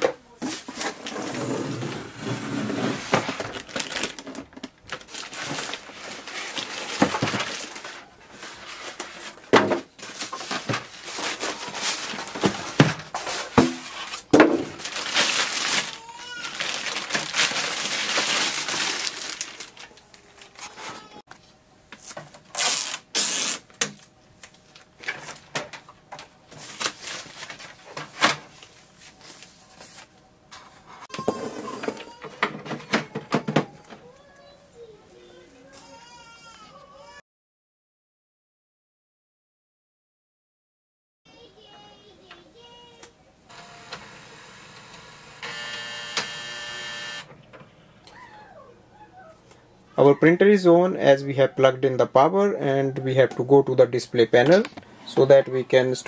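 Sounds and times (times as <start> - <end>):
cardboard box scraping and rustling: 0.4 - 4.2
plastic wrapping crinkling: 3.0 - 9.4, 10.0 - 21.2, 22.0 - 25.6, 26.5 - 30.1.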